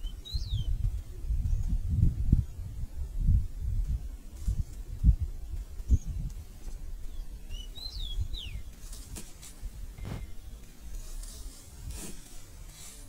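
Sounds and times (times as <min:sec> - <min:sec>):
small bird chirping: 0:00.0 - 0:02.0, 0:05.5 - 0:09.2.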